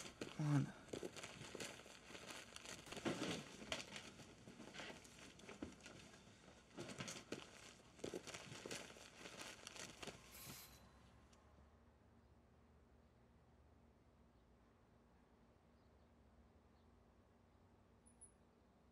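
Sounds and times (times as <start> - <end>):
rustling of fabric and paper: 0.0 - 10.7.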